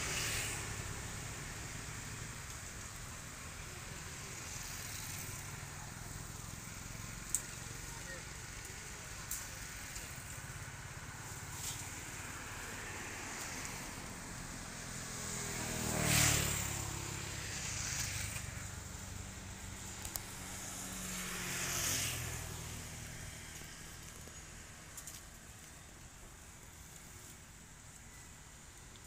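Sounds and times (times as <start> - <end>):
vehicle driving past: 11.0 - 25.0.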